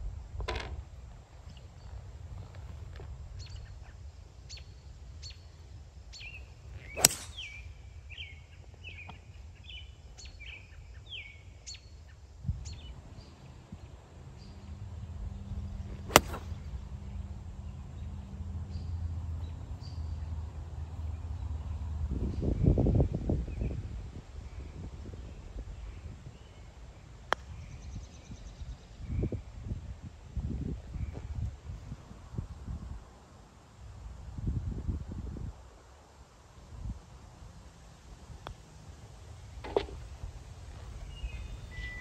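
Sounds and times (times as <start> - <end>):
golf club striking ball: 7.0 - 7.6, 16.1 - 16.6, 39.5 - 42.0
birds chirping: 39.4 - 42.0.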